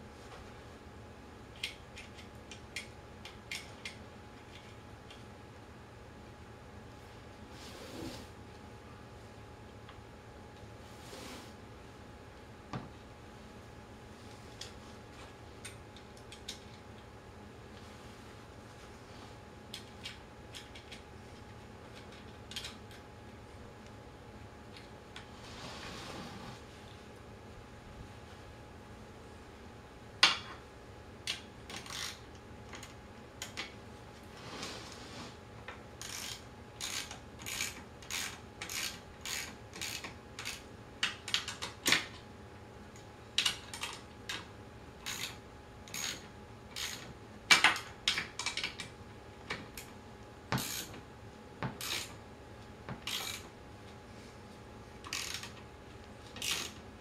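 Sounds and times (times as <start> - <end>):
metallic clicking and scraping: 53.0 - 53.5.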